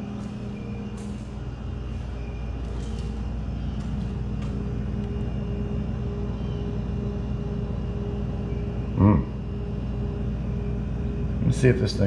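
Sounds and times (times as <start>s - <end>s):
freezer compressor humming: 0.0s - 12.0s.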